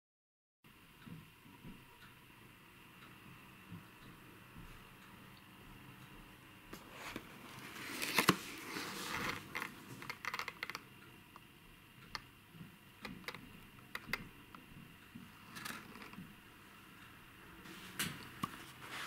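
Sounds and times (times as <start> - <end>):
cardboard lid scraping rustle: 6.8 - 9.8.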